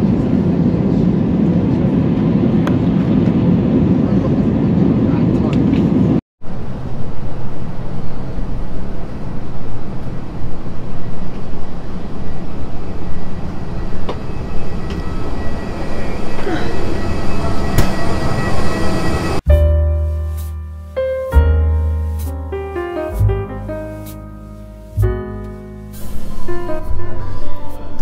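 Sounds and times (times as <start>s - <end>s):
airliner cabin rushing noise: 0.1s - 19.4s, 25.9s - 28.0s.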